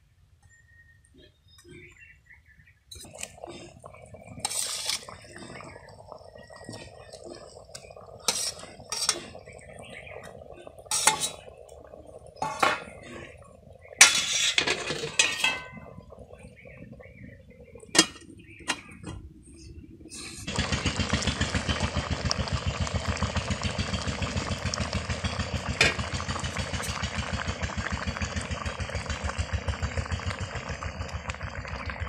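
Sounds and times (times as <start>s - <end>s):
curry simmering: 1.8s - 32.0s
metal spatula scraping a pot: 2.9s - 5.8s, 6.4s - 10.3s, 10.9s - 11.5s, 12.4s - 13.4s, 14.0s - 16.0s
pot lid clanking: 10.9s - 11.4s, 12.4s - 12.9s, 14.0s - 15.8s, 18.0s - 19.2s.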